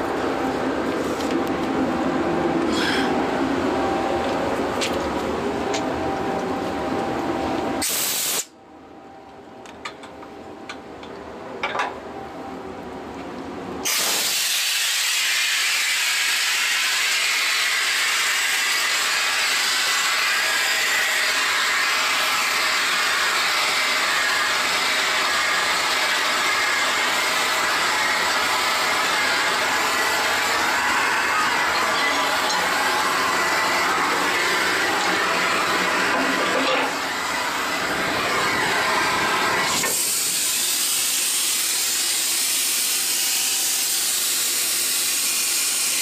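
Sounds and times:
compressed air hissing from hose: 0:07.8 - 0:08.5, 0:13.8 - 0:19.2, 0:39.7 - 0:46.0.

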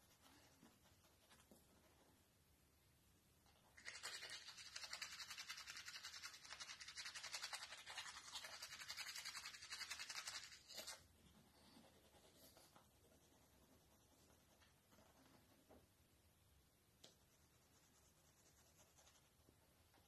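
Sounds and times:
toothbrush scrubbing teeth: 0:03.8 - 0:11.1.

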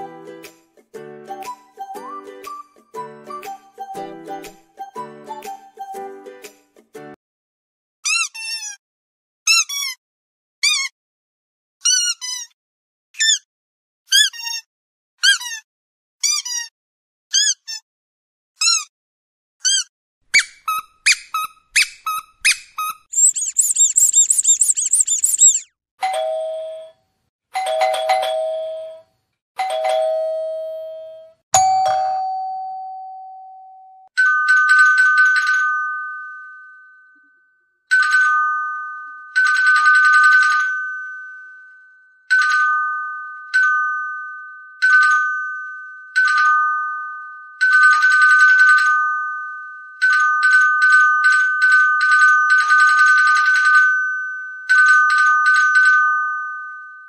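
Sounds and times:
rapid high-pitched squeaking: 0:13.2 - 0:13.5, 0:19.6 - 0:25.7
doorbell two-note chime: 0:29.7 - 0:34.0.

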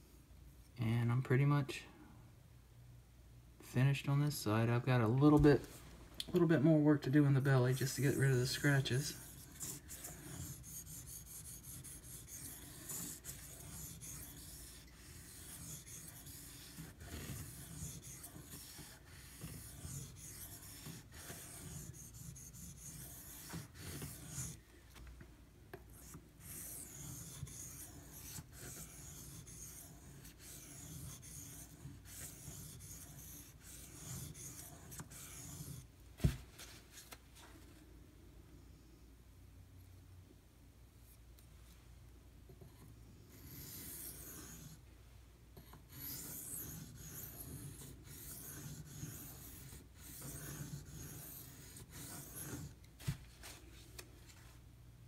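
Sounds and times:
knife blade rubbing on whetstone: 0:07.9 - 0:24.6, 0:26.4 - 0:35.8, 0:45.9 - 0:52.8.

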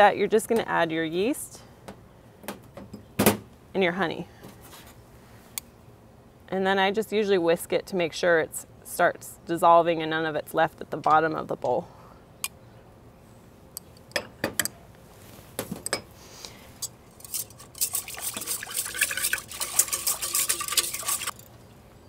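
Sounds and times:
whisk clinking against steel bowl: 0:17.2 - 0:21.4.

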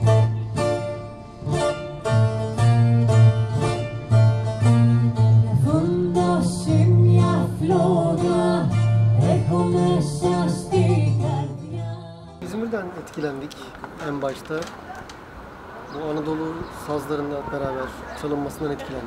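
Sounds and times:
plucked bouzouki: 0:00.0 - 0:07.2
electric bass: 0:00.0 - 0:12.4
person singing: 0:05.2 - 0:12.2.

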